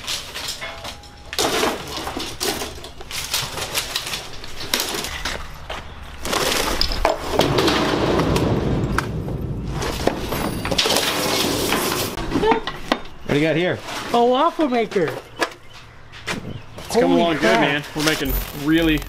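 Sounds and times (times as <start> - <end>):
junk crashing into metal dumpster: 0.5 - 5.1, 6.3 - 12.9.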